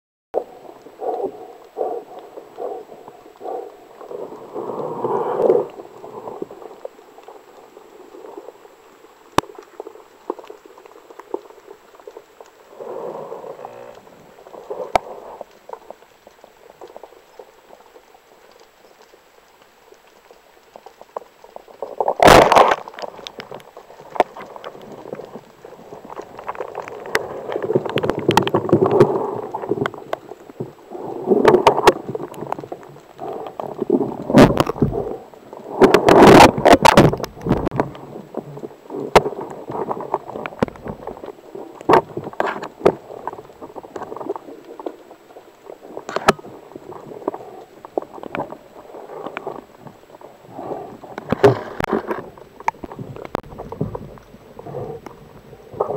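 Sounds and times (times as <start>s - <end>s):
muffled underwater water noise: 0.4s - 55.9s
water churning: 21.5s - 55.9s.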